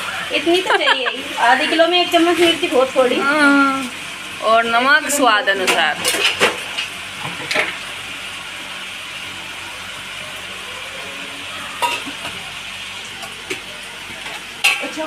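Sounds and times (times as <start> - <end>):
chicken sizzling in a pot: 0.0 - 15.0.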